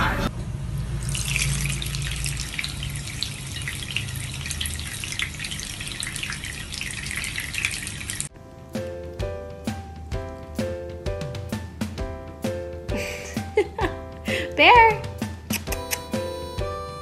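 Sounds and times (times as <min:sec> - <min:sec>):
music: 0:00.0 - 0:00.3, 0:08.3 - 0:17.0
tap water splashing: 0:01.0 - 0:08.3.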